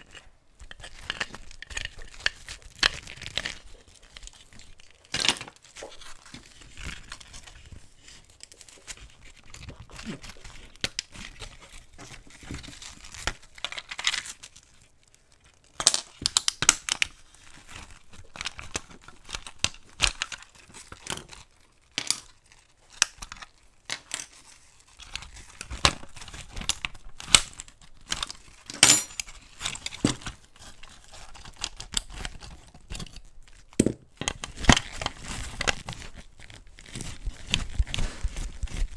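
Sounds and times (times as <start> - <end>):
small metal parts clicking and scraping: 28.7 - 29.9
gloved hands rustling: 33.7 - 38.9.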